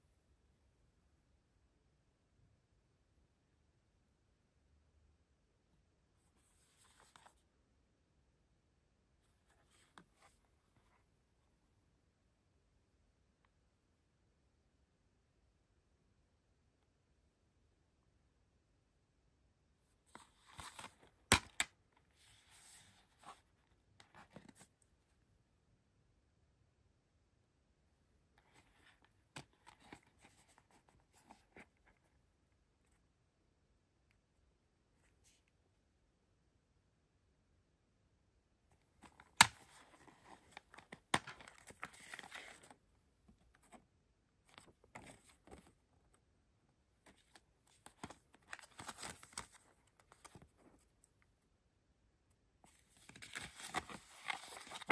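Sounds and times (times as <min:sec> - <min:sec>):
plastic case and paper rustling: 0:52.7 - 0:54.9.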